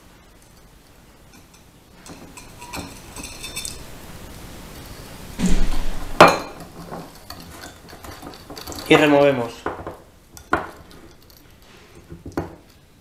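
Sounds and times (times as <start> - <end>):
crockery clattering and clinking: 1.3 - 3.9, 6.2 - 12.9
whisk scraping bowl: 2.0 - 4.0, 6.6 - 9.4.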